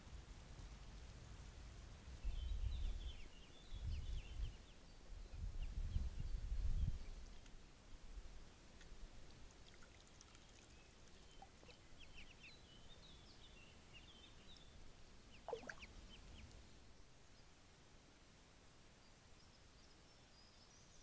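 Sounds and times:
ducklings peeping: 11.2 - 12.6, 15.3 - 16.6.

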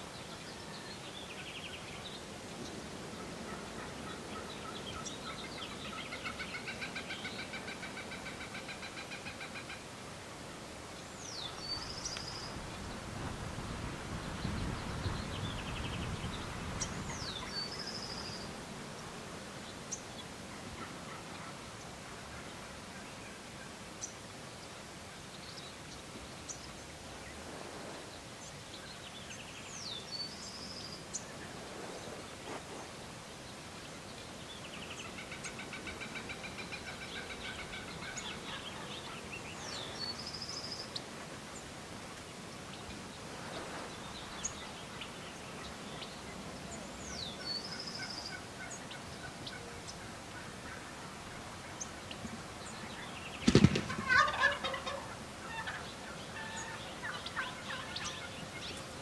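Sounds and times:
turkeys gobbling: 35.1 - 38.9, 53.5 - 58.4.

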